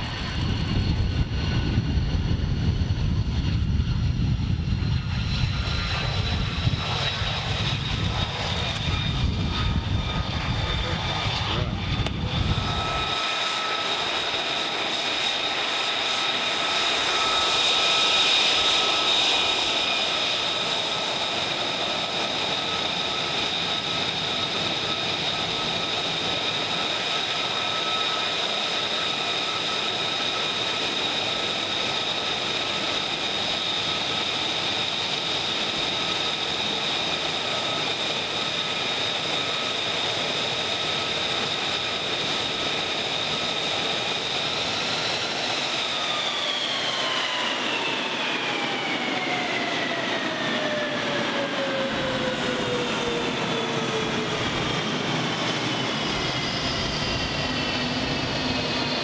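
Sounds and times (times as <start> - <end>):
jet engine deep rumble: 0.0 - 59.0
jet engine high whine: 0.0 - 59.0.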